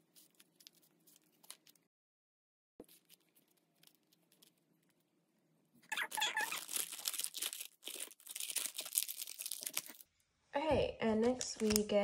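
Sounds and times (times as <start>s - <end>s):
plastic packaging crinkling: 0.0s - 1.9s, 2.8s - 5.1s, 5.9s - 10.1s.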